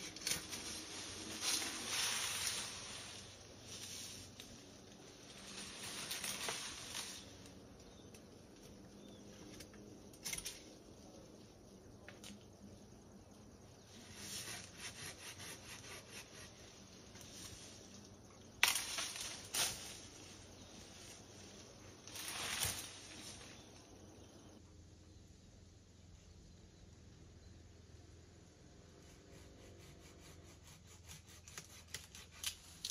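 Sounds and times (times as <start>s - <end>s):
branches and leaves rustling and snapping: 0.0s - 11.2s, 14.0s - 24.6s, 31.4s - 32.9s.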